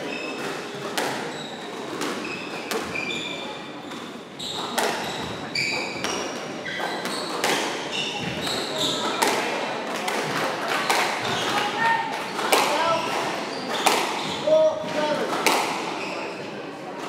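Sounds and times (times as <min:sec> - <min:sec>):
shoes squeaking on wooden floor: 0:00.0 - 0:09.4, 0:10.2 - 0:16.5
squash ball knocking off rackets and walls: 0:12.2 - 0:16.0.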